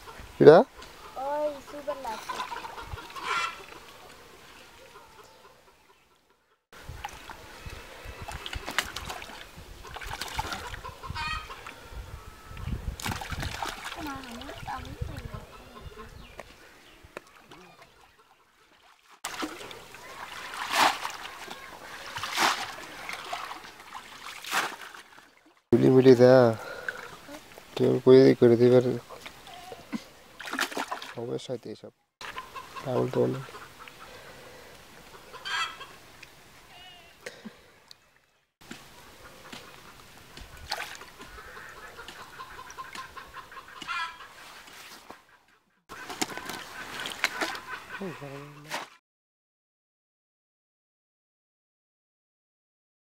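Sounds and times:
chickens clucking: 0.0 - 6.6, 9.8 - 12.7, 14.5 - 18.7, 32.2 - 37.0, 39.0 - 40.2, 41.1 - 48.7
muddy water splashing: 1.2 - 4.6, 6.8 - 11.8, 12.9 - 15.8, 17.2 - 25.6, 29.1 - 31.3, 39.2 - 45.0, 45.9 - 49.0.

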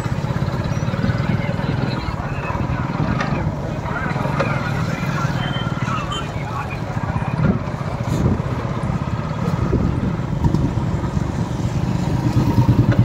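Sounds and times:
motorcycle engine revving: 6.9 - 13.0.

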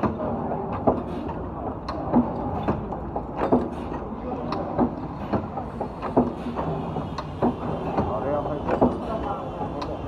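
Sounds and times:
machine running: 0.0 - 10.0.

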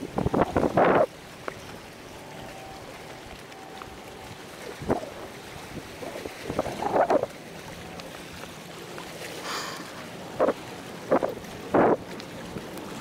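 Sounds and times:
wind on microphone: 0.0 - 1.2, 3.9 - 7.4, 10.3 - 12.7
small waves washing against rocks: 0.0 - 13.0.

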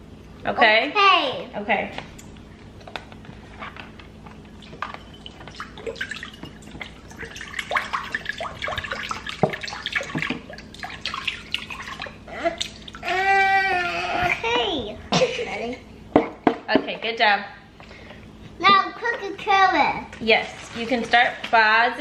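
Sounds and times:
broth pouring and splashing: 4.4 - 13.6.

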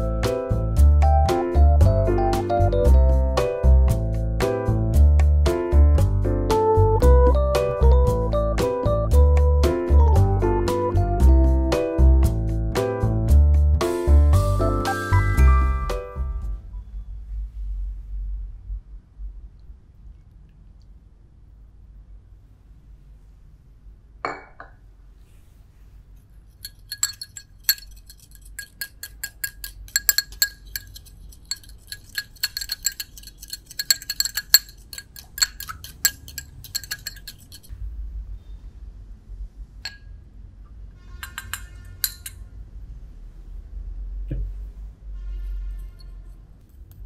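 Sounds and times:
spoon clinking against glass bowl: 26.6 - 37.7, 41.2 - 42.4.

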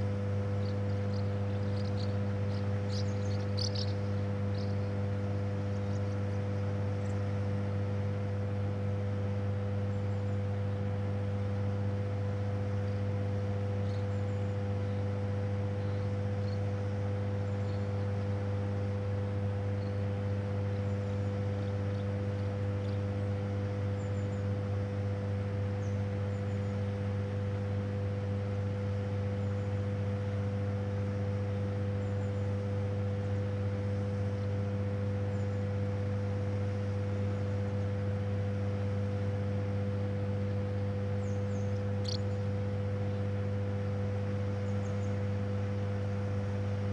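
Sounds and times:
power station machinery hum: 0.0 - 46.9
faint high chirps: 0.6 - 4.9.

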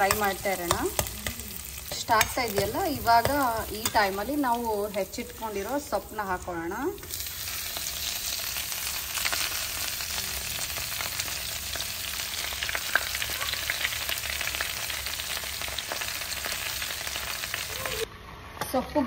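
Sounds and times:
leafy greens sizzling in oil: 0.0 - 18.1.

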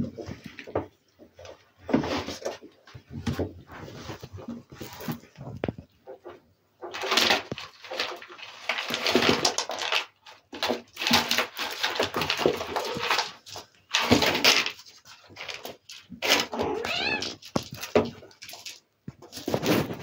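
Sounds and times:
kittens scuffling on fabric: 1.4 - 5.9, 11.1 - 20.0.

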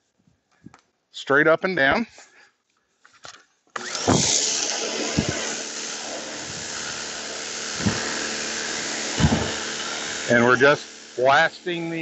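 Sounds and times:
electric motor and pump hum: 3.7 - 12.0
water jet hissing on car: 4.1 - 12.0.

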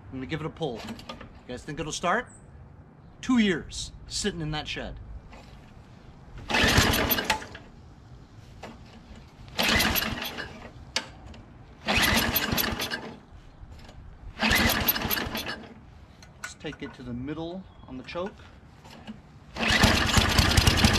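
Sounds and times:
engine turning over on recoil pulls: 6.4 - 7.7, 8.6 - 15.8, 18.8 - 20.9.

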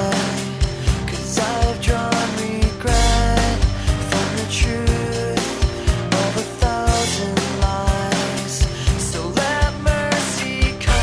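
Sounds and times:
steady drum beat: 0.0 - 11.0.

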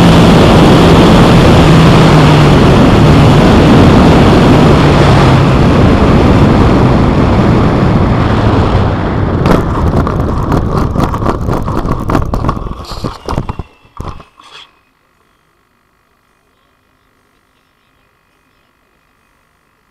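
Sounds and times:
model plane propeller running: 0.0 - 19.9.

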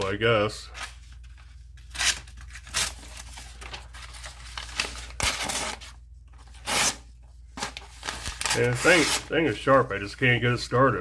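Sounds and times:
paper rustling: 0.8 - 6.9, 7.6 - 9.7.

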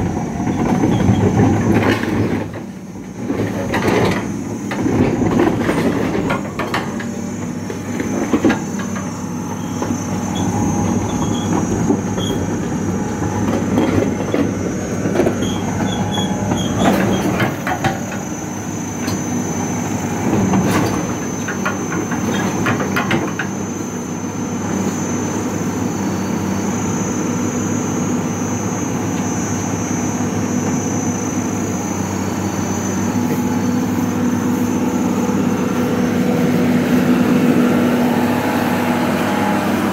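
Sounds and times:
steel tracks clanking: 0.0 - 23.6
diesel engine running: 0.0 - 39.9.

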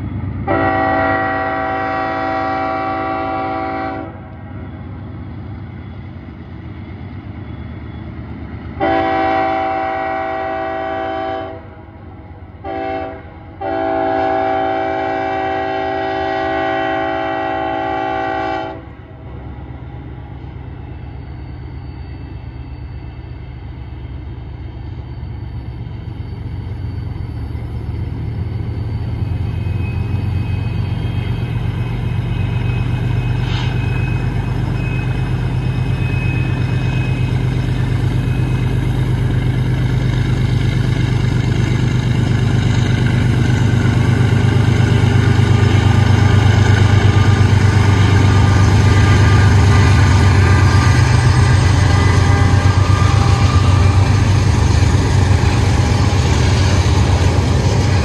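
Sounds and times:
diesel engines rumbling: 0.0 - 58.0
locomotive air horn: 0.4 - 4.4, 8.8 - 11.9, 12.6 - 19.1, 44.0 - 58.0.

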